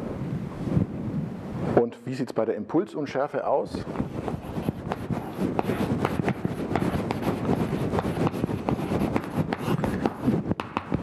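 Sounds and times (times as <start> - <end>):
chalk writing on blackboard: 3.9 - 11.0.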